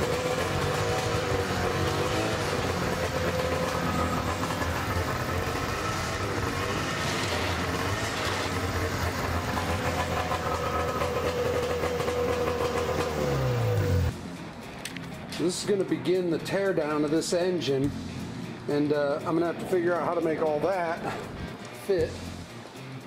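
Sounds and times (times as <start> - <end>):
snowmobile engine running: 0.0 - 14.1.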